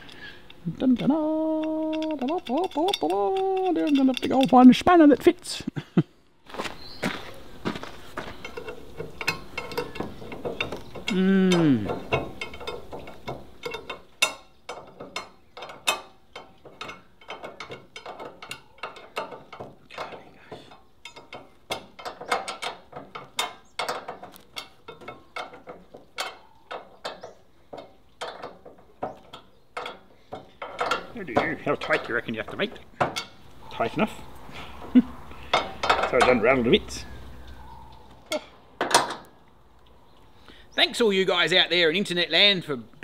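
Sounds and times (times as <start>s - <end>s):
spanner ratchet clicking: 0.1s - 4.6s.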